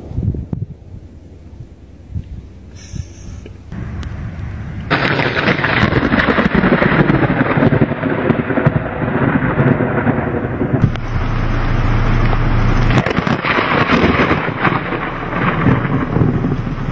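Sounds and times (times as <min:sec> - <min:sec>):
thunder crack and rumble: 0:03.7 - 0:16.9.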